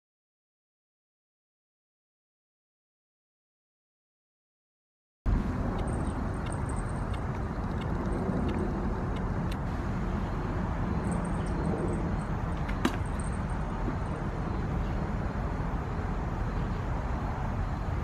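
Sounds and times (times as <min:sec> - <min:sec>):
distant road rumble: 0:05.3 - 0:18.0.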